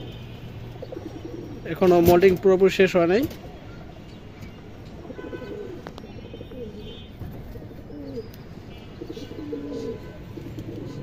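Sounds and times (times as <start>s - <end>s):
pigeons cooing: 0.0s - 2.1s, 5.0s - 11.0s.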